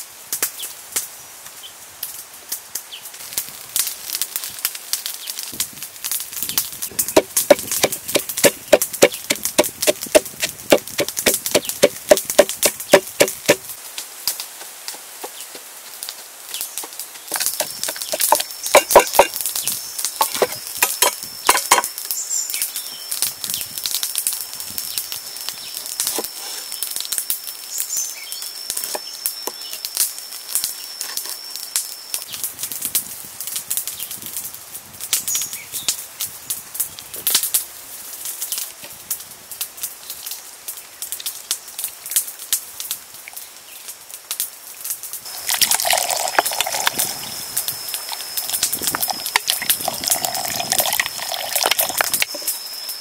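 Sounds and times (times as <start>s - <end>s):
pestle pounding in wooden mortar: 6.9s - 13.6s, 17.3s - 19.4s, 48.9s - 52.3s
knife tapping on board: 7.2s - 13.6s
thin high whine: 45.3s - 53.0s.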